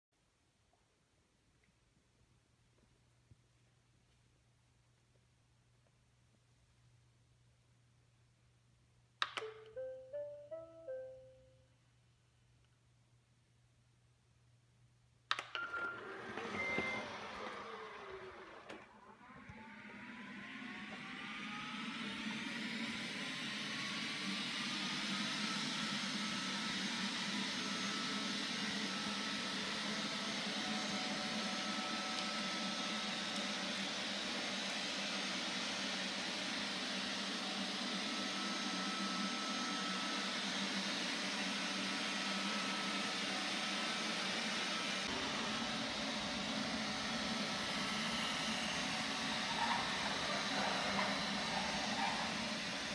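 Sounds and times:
click: 9.2 - 9.8, 15.3 - 15.7
falling whir: 15.3 - 42.0, 43.9 - 52.9
vacuum motor whine: 15.3 - 52.9.

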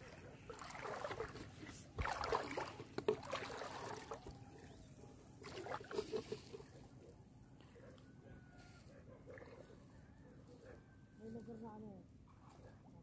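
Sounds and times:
seawater sloshing and splashing: 0.0 - 4.8, 5.4 - 6.8.

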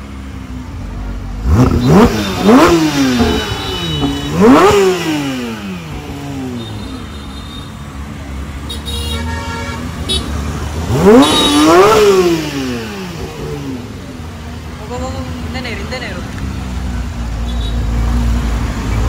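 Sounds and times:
car engine revving: 0.0 - 7.1, 10.0 - 19.0.

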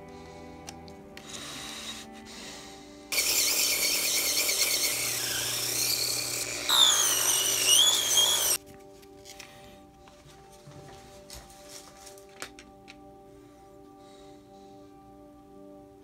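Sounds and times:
rotary tool whining: 3.1 - 8.6.

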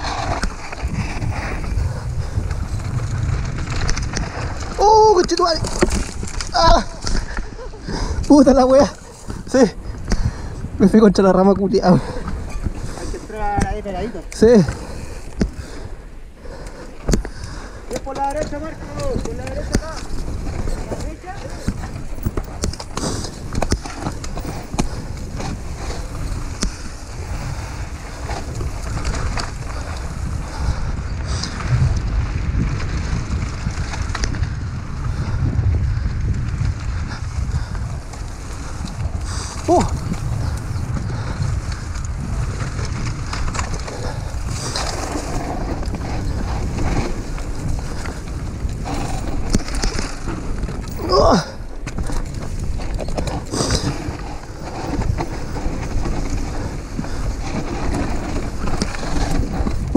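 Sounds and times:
tyres rolling on dirt: 0.0 - 59.9
wind buffeting microphone: 0.0 - 59.9
bike knocks and rattles: 17.0 - 59.9.

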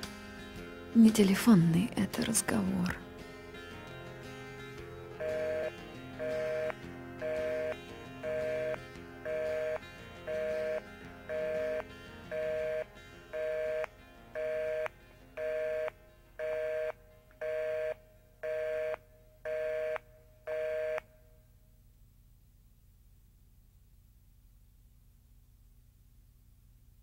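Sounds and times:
telephone busy signal beeps: 5.2 - 12.8, 13.4 - 17.9.

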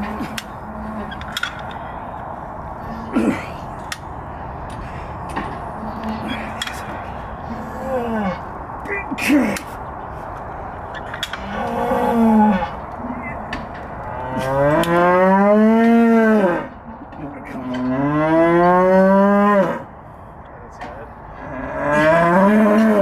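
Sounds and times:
cow bellowing: 11.0 - 13.4, 21.4 - 23.0.

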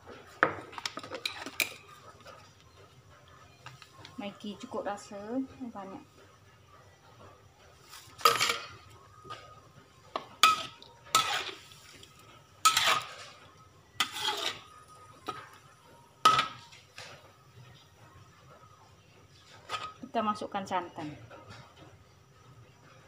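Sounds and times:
metal spatula scraping wok: 7.8 - 9.5, 10.2 - 15.6, 19.4 - 20.0.

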